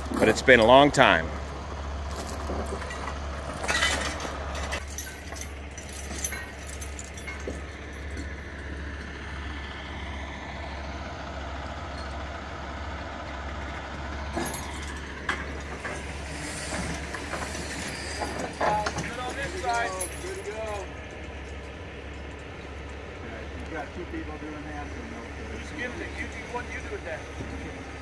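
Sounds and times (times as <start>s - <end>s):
metal clinks: 0.0s - 9.2s, 11.9s - 12.2s, 14.3s - 23.0s
chain clinking and rattling: 0.0s - 9.4s, 11.9s - 12.3s, 14.3s - 23.1s
diesel truck engine idling: 0.0s - 28.0s.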